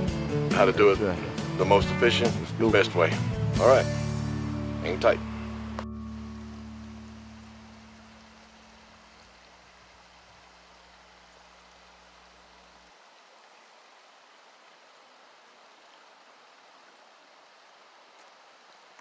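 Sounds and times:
creek running over rocks: 0.0s - 19.0s
low steady hum: 4.4s - 13.3s.

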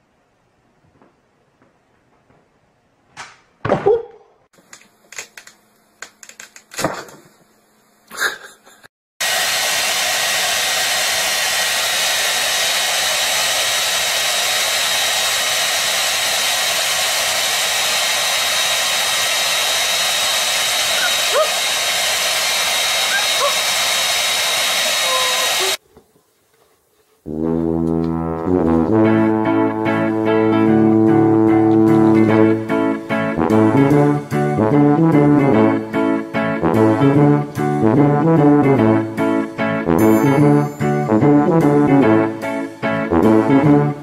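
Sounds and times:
hair dryer blowing: 9.2s - 25.8s.

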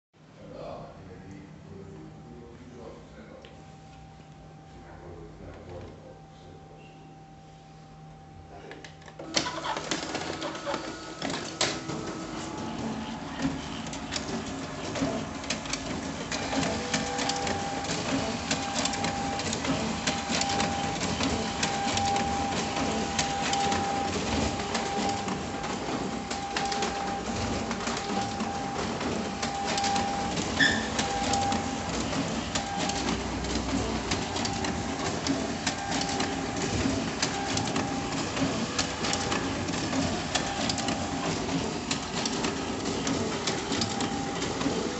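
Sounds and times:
thin steady whine: 0.4s - 9.2s
copier mechanical whir: 0.5s - 44.9s.

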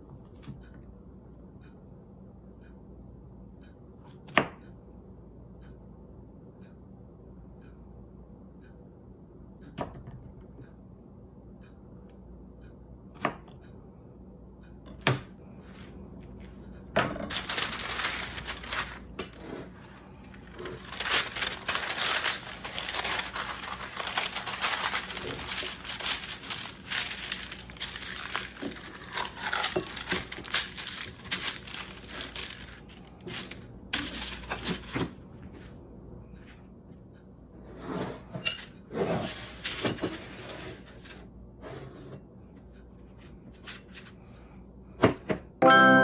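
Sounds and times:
paper crinkling and rustling: 17.2s - 35.2s.

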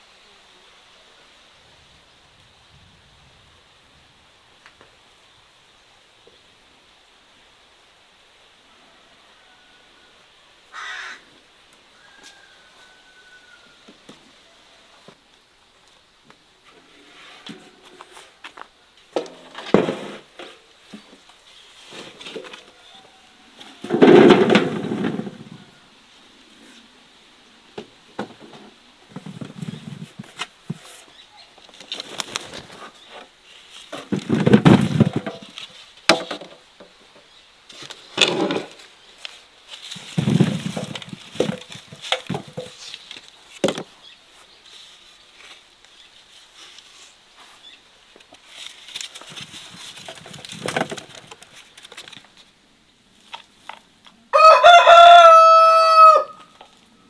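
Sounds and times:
rooster crowing: 8.6s - 11.2s, 11.9s - 15.0s, 22.6s - 24.0s, 54.3s - 56.6s
wooden crates rustling and knocking: 17.4s - 25.8s, 27.8s - 44.0s, 47.4s - 52.5s
fruit rolling onto metal: 19.1s - 21.1s, 23.6s - 25.7s, 28.2s - 30.9s, 33.9s - 36.9s, 38.1s - 38.9s, 39.9s - 43.9s, 49.2s - 52.2s.

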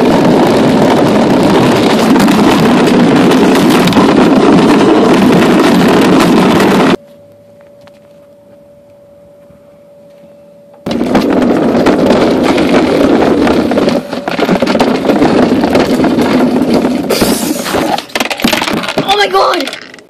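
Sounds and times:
plastic wheels rattling over ground: 0.0s - 7.0s, 10.9s - 20.0s
wind on microphone: 0.0s - 7.0s, 10.9s - 17.6s
faint steady hum: 7.0s - 11.0s.

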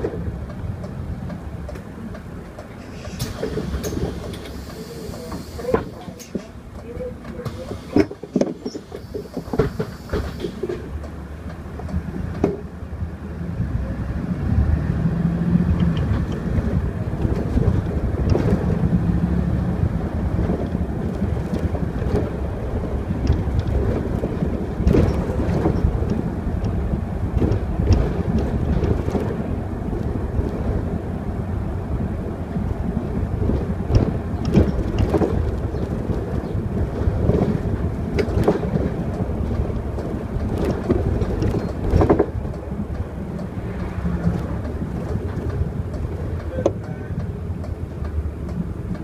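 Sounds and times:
bus engine and road rumble: 0.0s - 49.0s
bodywork rattles and knocks: 20.2s - 30.8s, 32.8s - 46.5s.

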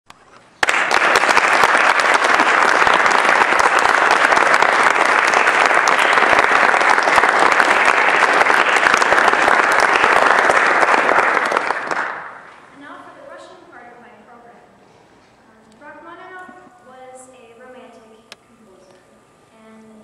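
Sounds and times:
audience applauding: 0.6s - 12.6s.

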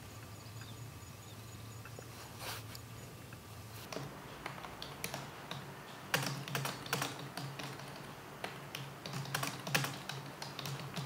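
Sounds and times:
faint low hum: 0.0s - 11.0s
sharp clicks and taps: 3.3s - 11.0s.

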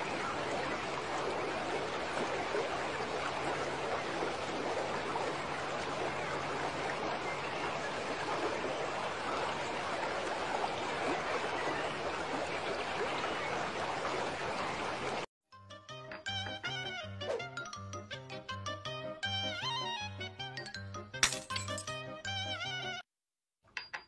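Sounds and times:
water rushing: 0.0s - 15.3s.

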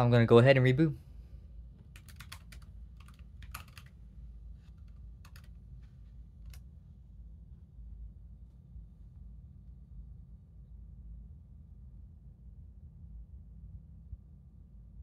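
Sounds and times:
laptop keyboard typing: 1.9s - 4.0s, 4.6s - 5.6s, 6.4s - 6.6s.

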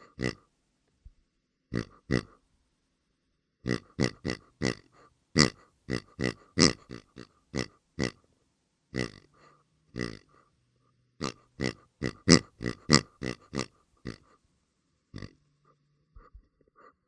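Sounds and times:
pigs grunting: 0.0s - 0.4s, 1.7s - 2.4s, 3.6s - 8.2s, 8.9s - 10.4s, 11.2s - 14.4s, 15.1s - 15.4s.

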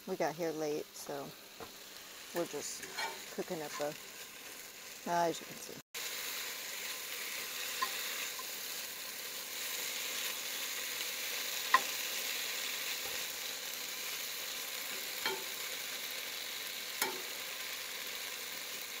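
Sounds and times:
food sizzling in a pan: 0.0s - 19.0s
utensil clinking against pan: 15.2s - 15.5s.

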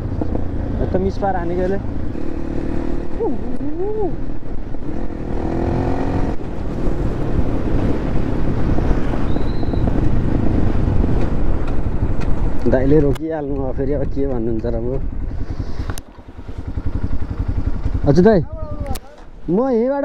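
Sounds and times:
dirt bike engine running: 0.0s - 20.0s
wind noise on microphone: 3.6s - 16.1s.

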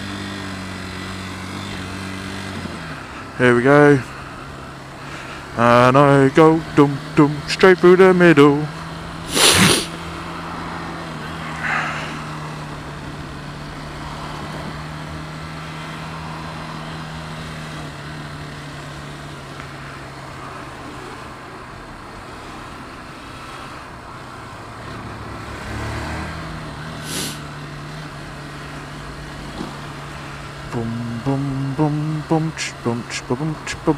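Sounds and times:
motorcycle engine at low revs: 0.0s - 33.9s
wind and road noise: 0.0s - 33.9s
short hiss: 9.3s - 10.0s, 27.0s - 27.4s.

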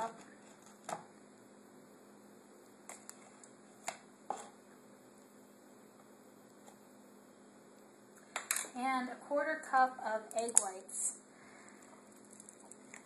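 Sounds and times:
faint room background: 0.0s - 13.0s.

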